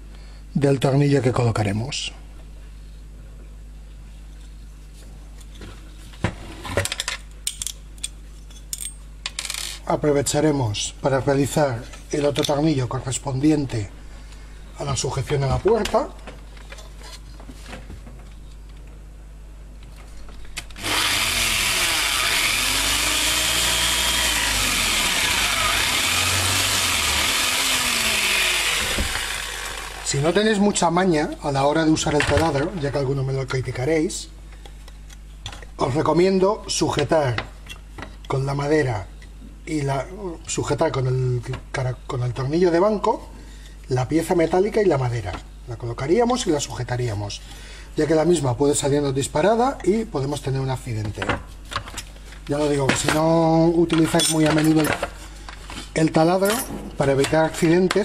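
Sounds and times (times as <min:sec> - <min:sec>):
steady low hum: 0:00.0 - 0:58.0
drill press cutting aluminium: 0:20.8 - 0:30.3.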